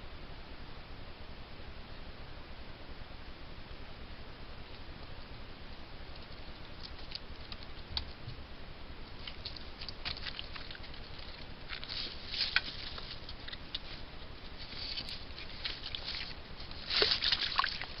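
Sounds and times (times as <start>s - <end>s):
microphone hiss: 0.0s - 18.0s
animal moving through wet sticks: 6.1s - 8.2s, 9.1s - 18.0s.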